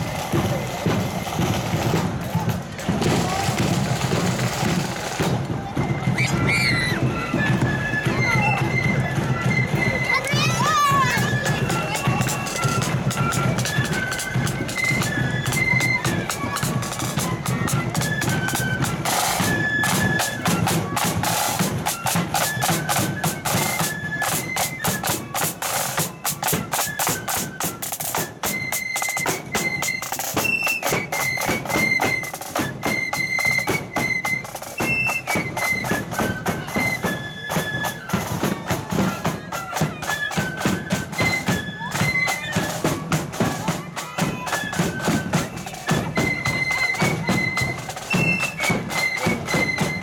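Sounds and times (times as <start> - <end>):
snare drum beating: 0.0 - 7.7
flutes playing melody: 0.0 - 50.0.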